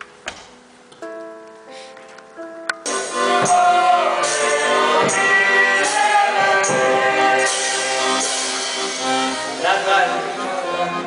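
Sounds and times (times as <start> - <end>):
sustained chords: 2.9 - 11.0
voices singing: 2.9 - 11.0.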